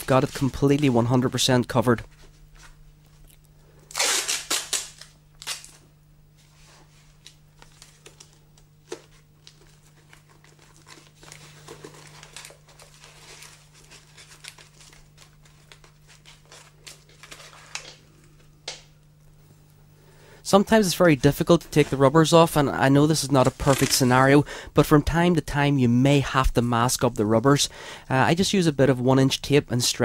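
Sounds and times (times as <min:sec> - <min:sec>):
tape crinkling and rubbing: 0:02.1 - 0:18.5, 0:23.2 - 0:24.4
masking tape ripping: 0:03.9 - 0:05.8.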